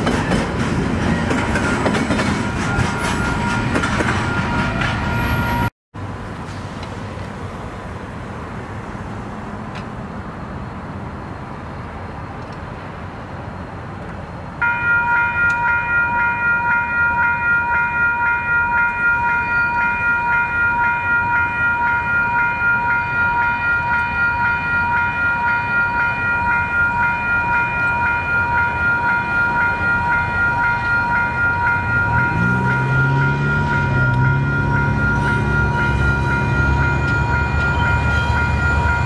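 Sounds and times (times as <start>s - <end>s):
level crossing warning bell: 1.1s - 5.7s, 14.6s - 39.0s.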